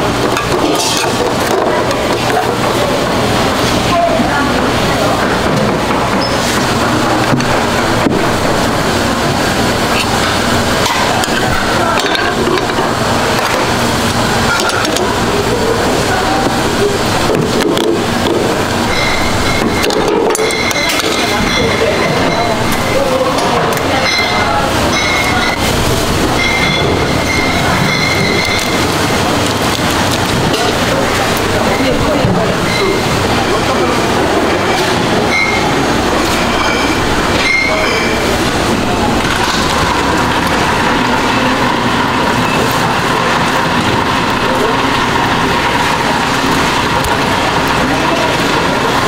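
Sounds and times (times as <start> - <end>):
background chatter: 0.0 - 49.0
busy market din: 0.0 - 49.0
gas burners running: 0.0 - 49.0
high squealing tone: 18.8 - 29.2, 34.4 - 46.8.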